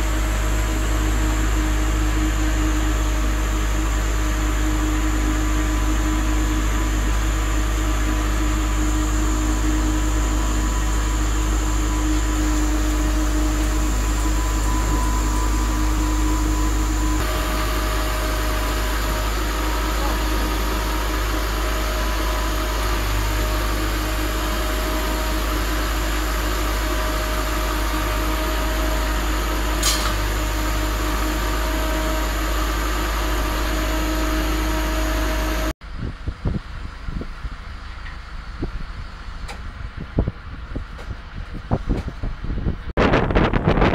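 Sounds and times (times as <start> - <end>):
machinery whining: 0.0 - 35.8
harvester machinery rumbling: 0.0 - 43.9
sharp click: 29.8 - 30.2.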